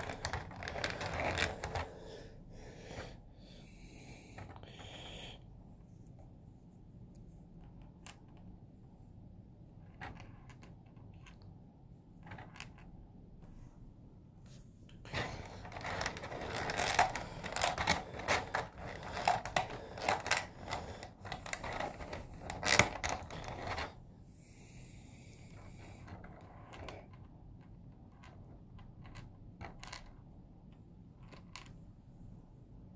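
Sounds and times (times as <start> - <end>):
plastic rustling and clicking: 0.0 - 1.9, 15.0 - 24.0.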